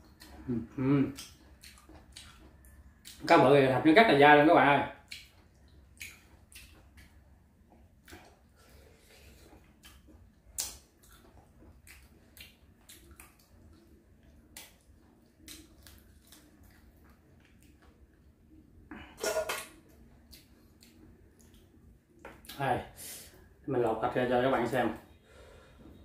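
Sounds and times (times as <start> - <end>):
wet lip smacks while chewing: 1.1 - 3.2, 5.0 - 7.1, 9.5 - 17.9, 20.3 - 21.7.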